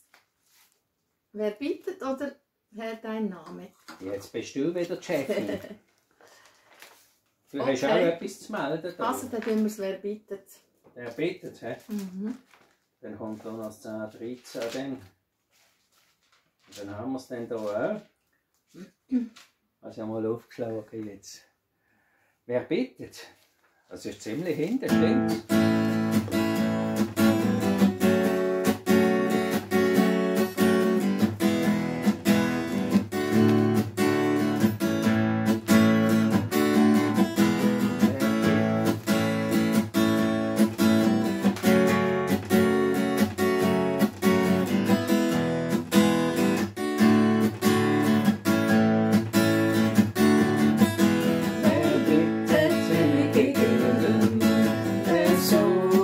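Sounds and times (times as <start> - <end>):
acoustic guitar strumming chords: 7.6 - 8.1, 24.9 - 56.0.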